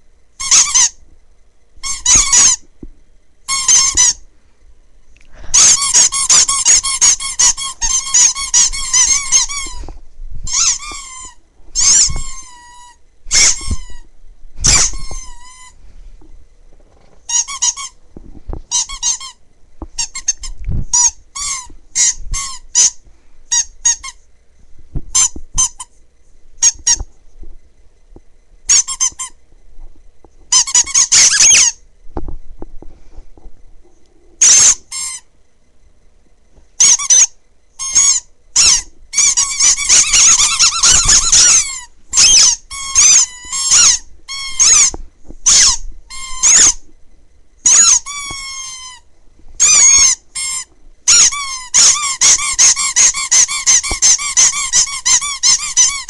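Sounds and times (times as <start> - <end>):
squeaky toys squeaking: 0.4 - 1.0, 1.8 - 2.6, 3.5 - 4.2, 5.5 - 9.9, 10.5 - 14.0, 14.6 - 15.8, 17.3 - 18.0, 18.7 - 19.4, 20.0 - 24.2, 25.1 - 25.9, 28.7 - 29.3, 30.5 - 31.8, 34.4 - 35.2, 36.8 - 46.8, 47.6 - 49.0, 49.6 - 56.0.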